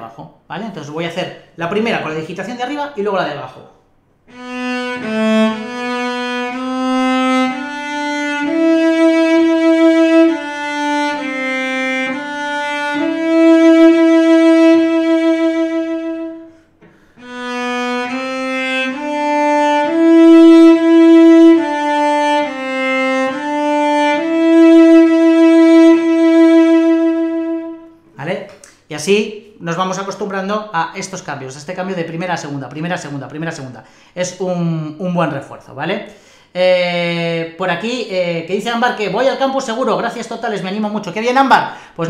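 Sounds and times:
bowed cello held notes: 4.3 - 28.0.

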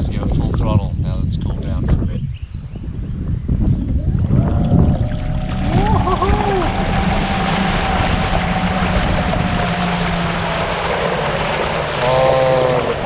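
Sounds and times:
rushing wake and spray: 4.7 - 13.0
electric motor hum: 4.9 - 13.0.

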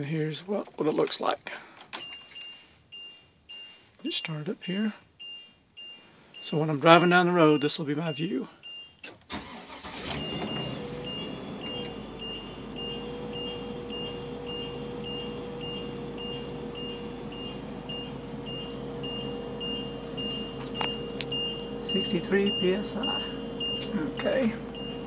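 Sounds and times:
high warning chime beeping: 2.0 - 25.0
engine idling: 9.4 - 25.0.

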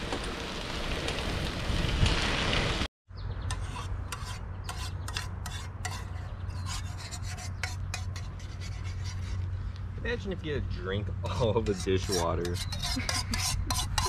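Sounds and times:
bicycle ride noise: 0.0 - 3.4
spoon scraping metal pot: 3.5 - 9.4, 11.3 - 14.0.

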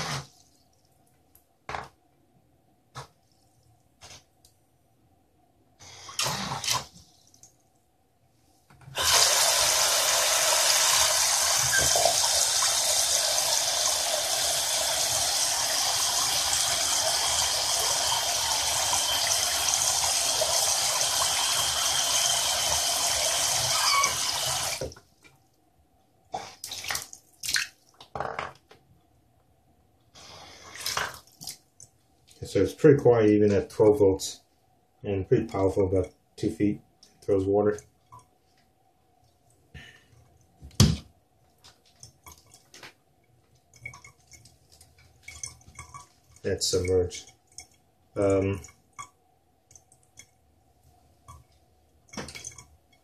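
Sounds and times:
water pump jet splashing: 9.0 - 24.8.

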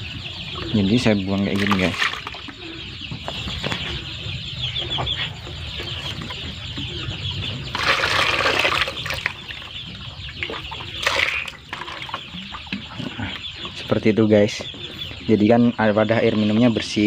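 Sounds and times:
chicks cheeping: 0.0 - 17.0
water splashing into plastic bucket: 1.5 - 2.5, 7.7 - 9.7, 10.4 - 12.2.

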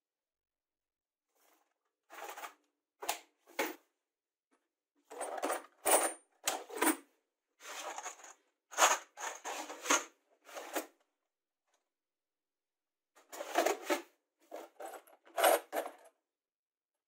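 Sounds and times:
metal nuts rattling in plastic bins: 5.1 - 7.0, 7.8 - 10.8, 13.4 - 16.1.

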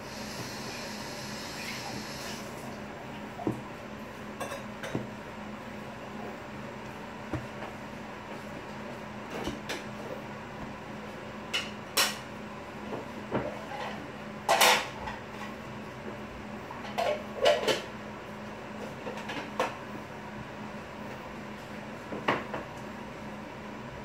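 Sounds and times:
steady low hum: 0.0 - 13.4
dough thudding and slapping: 2.8 - 4.0, 4.7 - 10.8.

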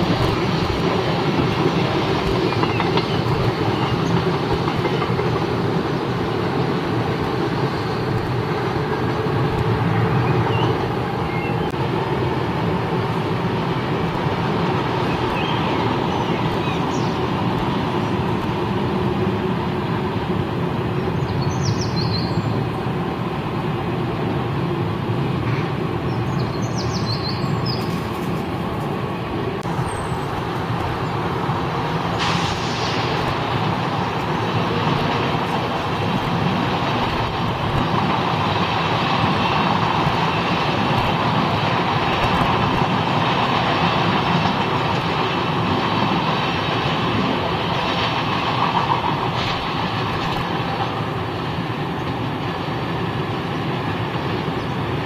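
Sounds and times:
train hiss: 0.0 - 55.0
train rumbling on tracks: 0.0 - 55.0
high squeals of train wheels: 13.6 - 18.4, 29.2 - 50.6.

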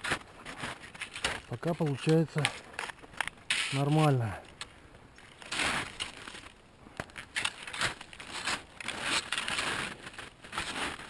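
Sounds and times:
skis swishing through snow: 0.0 - 2.4, 5.4 - 6.5, 7.4 - 11.0.

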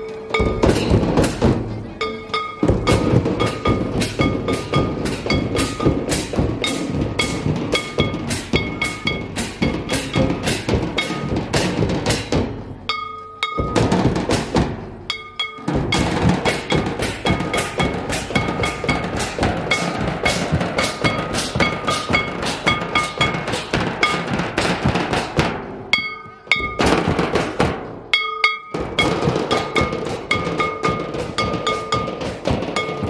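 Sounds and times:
drums beating steady rhythm: 0.0 - 33.0.

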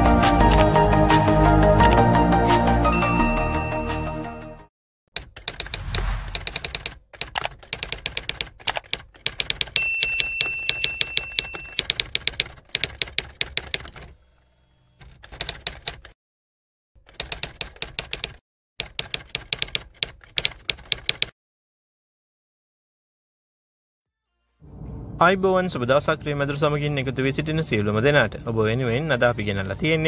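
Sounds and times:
typewriter bell ding: 3.0 - 3.7, 9.7 - 12.1
typewriter keystroke clacks: 5.2 - 14.1, 15.0 - 16.2, 17.0 - 21.3.

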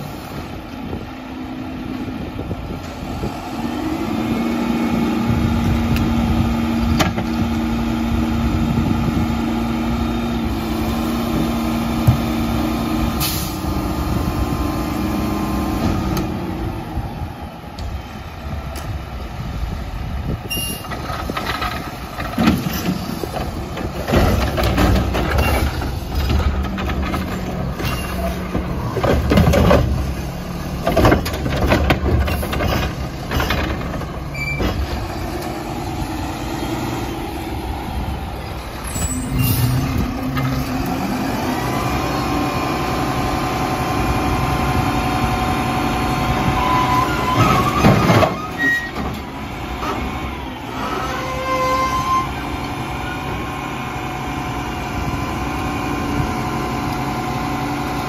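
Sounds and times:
garbage truck engine running: 0.0 - 58.0
air brake hiss: 13.2 - 13.6
refuse banging and crashing: 20.7 - 35.7, 46.6 - 51.5.

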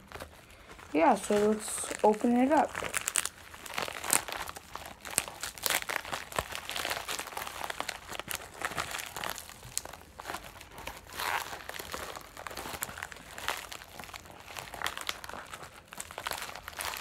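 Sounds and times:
plastic mailer crinkling: 0.0 - 17.0.

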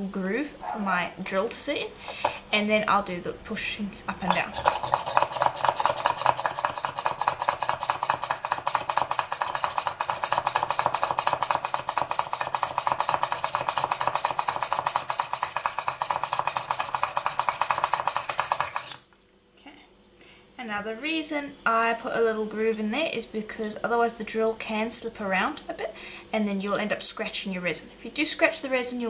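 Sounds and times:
hand drill rattling scrape: 4.5 - 19.0.

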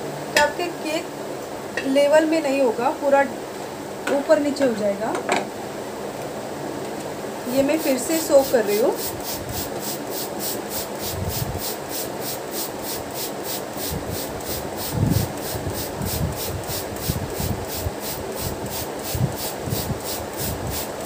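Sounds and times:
spray bottle spritzing: 7.7 - 21.0.

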